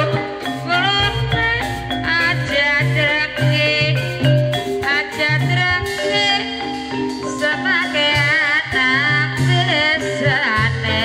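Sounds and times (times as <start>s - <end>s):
steady drum pulse: 0.0s - 6.0s
metallophones ringing: 0.0s - 11.0s
person singing wavering melody: 0.0s - 11.0s.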